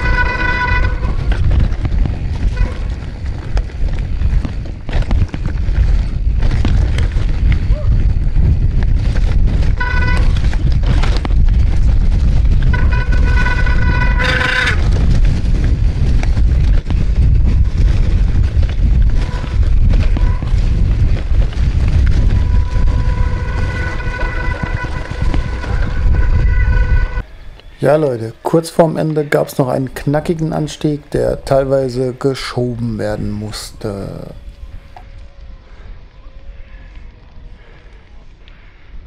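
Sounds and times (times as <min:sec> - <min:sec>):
steady buzzing tone: 0:00.0 - 0:01.5, 0:22.1 - 0:27.6
wind on microphone: 0:00.0 - 0:27.8, 0:33.1 - 0:39.0.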